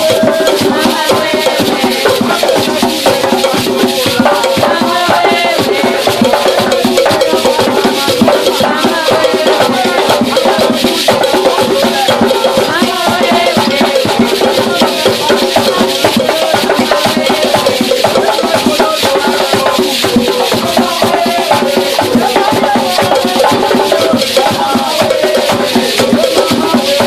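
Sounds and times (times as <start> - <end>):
gourd shaker rattling: 0.0 - 27.0
hand drums beating: 0.0 - 27.0
voices singing: 0.0 - 27.0.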